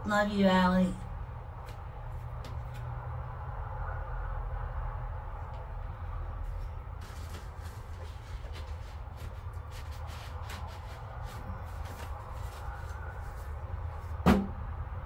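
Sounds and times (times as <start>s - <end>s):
paper rustling: 6.4s - 13.7s
sharp thump: 14.2s - 14.6s.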